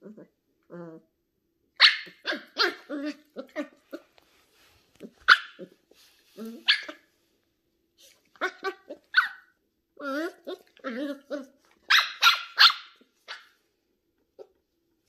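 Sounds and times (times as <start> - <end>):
puppy barking in high yaps: 1.8 - 4.0, 5.2 - 5.7, 6.6 - 7.1, 8.4 - 9.6, 11.8 - 13.6.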